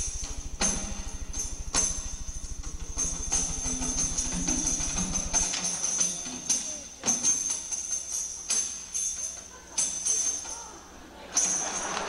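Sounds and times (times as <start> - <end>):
low buzz: 0.0 - 6.9
sharp percussion strikes: 0.0 - 10.8
jingling percussion music: 0.0 - 12.0.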